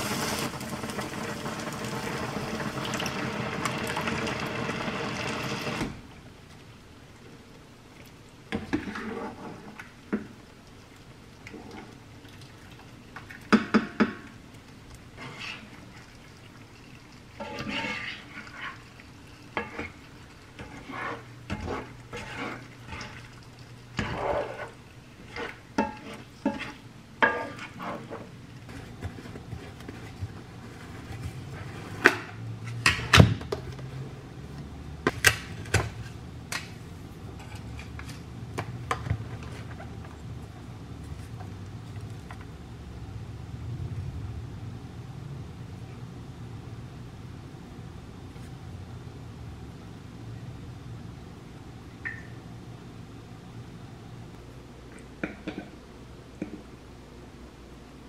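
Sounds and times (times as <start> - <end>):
light sizzle: 0.0 - 31.1
spatula scraping a skillet: 8.7 - 9.8, 15.2 - 15.9, 17.4 - 32.1.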